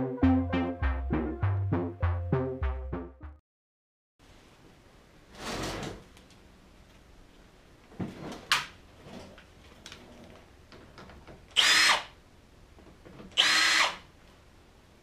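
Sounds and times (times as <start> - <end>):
drill motor whine: 11.6 - 12.1, 13.4 - 14.0.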